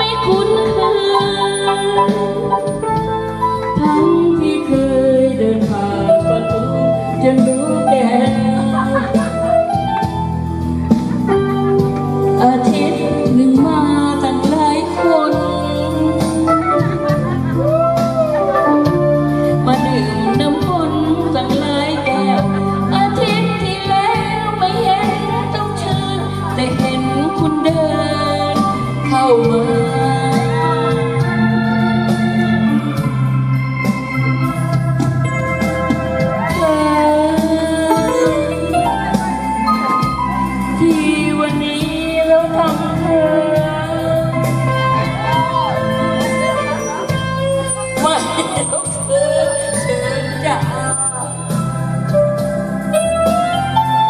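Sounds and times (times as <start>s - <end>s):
electronic keyboard chords: 0.0s - 54.0s
person singing: 11.3s - 34.2s, 35.2s - 51.7s.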